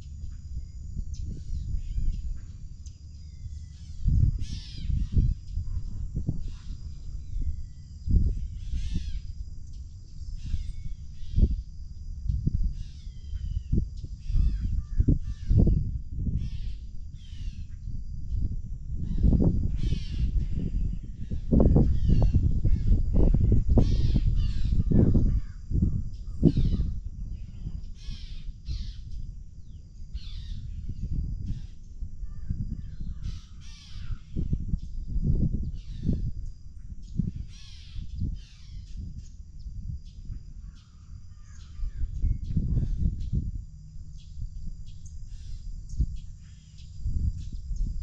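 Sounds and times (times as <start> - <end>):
birds calling: 0.0 - 5.6, 6.2 - 11.6, 19.0 - 34.8, 37.0 - 39.4, 40.6 - 43.4
wind rumble on microphone: 0.0 - 48.0.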